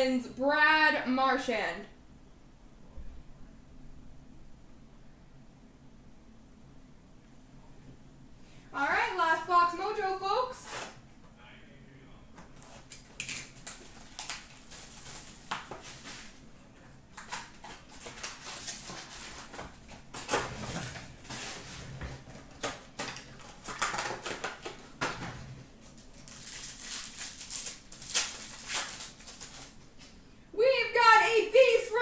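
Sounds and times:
cards rustling and tapping: 0:12.4 - 0:16.3, 0:17.1 - 0:20.4, 0:22.2 - 0:30.2.

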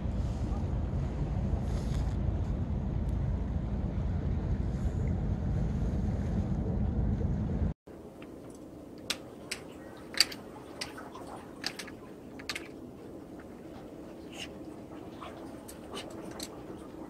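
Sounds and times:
wind on microphone: 0:00.0 - 0:07.8.

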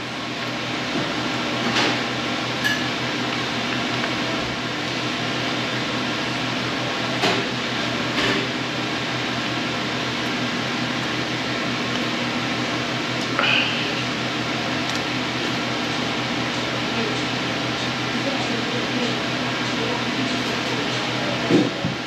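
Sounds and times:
steady mechanical hum: 0:00.0 - 0:22.0.

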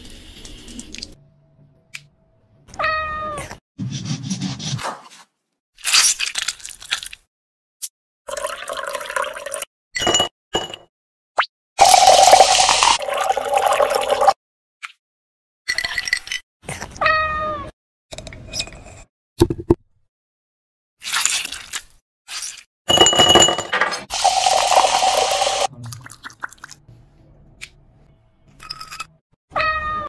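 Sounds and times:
soda poured over ice: 0:11.8 - 0:14.3, 0:24.1 - 0:25.7.

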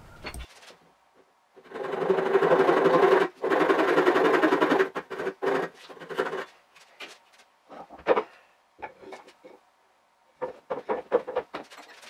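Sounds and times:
rapid machine-like rasping: 0:01.6 - 0:06.6
wooden parts and tools knocking: 0:01.9 - 0:09.6, 0:10.4 - 0:12.0.

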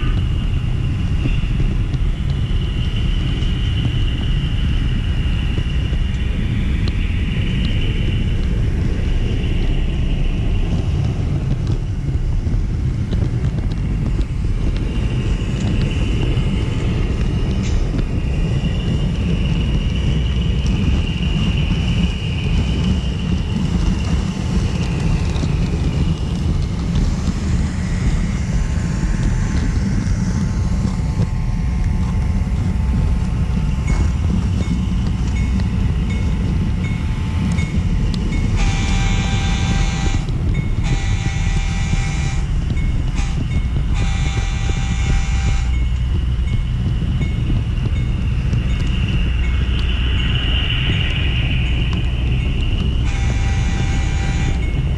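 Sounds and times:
model train rumbling on track: 0:00.0 - 0:54.9
high wavering squeal: 0:32.3 - 0:54.9
model locomotive horn: 0:38.6 - 0:45.9, 0:53.0 - 0:54.8.

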